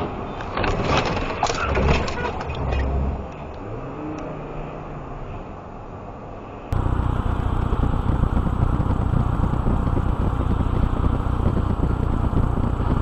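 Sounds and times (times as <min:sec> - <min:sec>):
tyre noise on wet road: 0:06.7 - 0:13.0.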